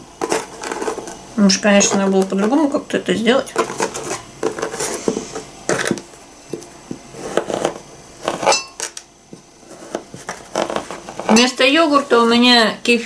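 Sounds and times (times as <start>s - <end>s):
knife cutting soft pear: 0.2s - 1.2s, 6.9s - 11.4s
knife clinking against glass bowl: 8.5s - 8.8s.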